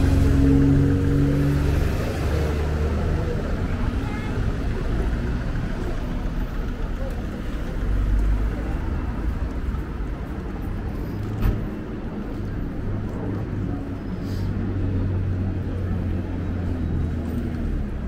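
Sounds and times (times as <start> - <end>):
chatter of passers-by: 0.0 - 18.0
road traffic: 0.0 - 18.0.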